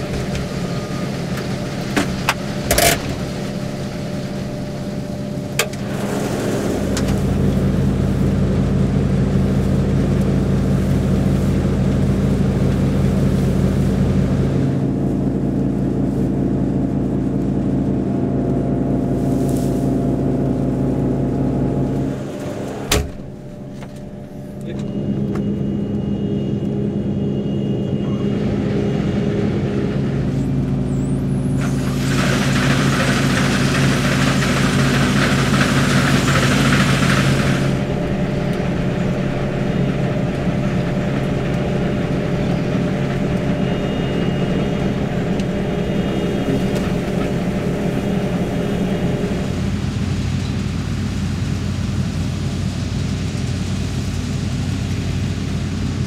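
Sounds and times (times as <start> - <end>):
combine harvester engine drone: 0.0 - 56.0
loud hiss: 31.4 - 40.3.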